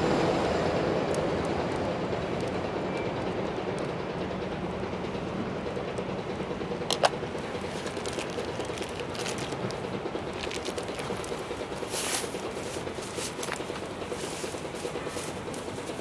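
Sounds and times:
low background hum: 0:00.0 - 0:16.0
wood fire crackling: 0:07.1 - 0:16.0.

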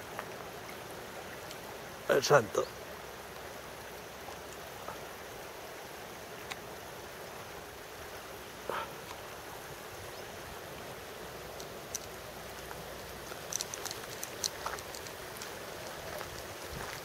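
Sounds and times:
river water rushing: 0:00.0 - 0:17.0
small sharp clicks: 0:11.5 - 0:16.5.

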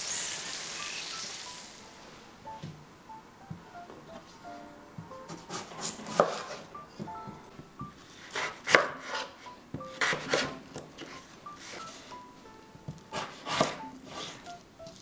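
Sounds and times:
soft background music: 0:00.7 - 0:15.0
knife cutting onto wooden board: 0:05.3 - 0:06.6, 0:08.3 - 0:09.3, 0:10.0 - 0:11.1, 0:13.1 - 0:14.4.

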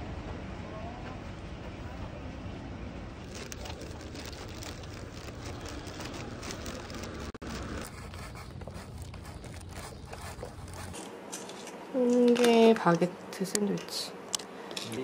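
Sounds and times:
plastic bag rustling: 0:03.2 - 0:12.6.

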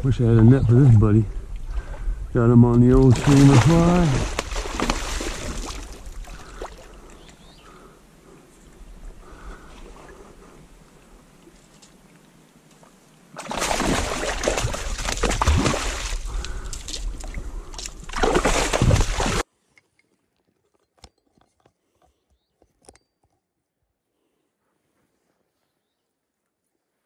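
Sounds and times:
water splashing from thrashing fish: 0:03.0 - 0:06.9, 0:13.4 - 0:19.4.

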